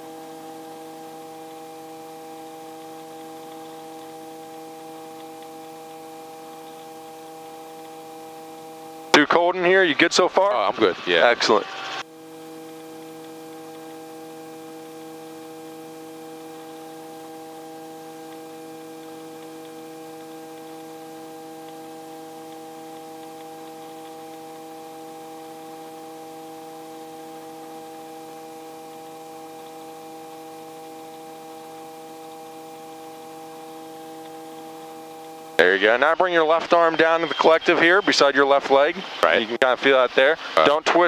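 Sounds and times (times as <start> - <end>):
helicopter cabin hum: 0.0 - 40.8
intercom hiss: 33.7 - 41.0.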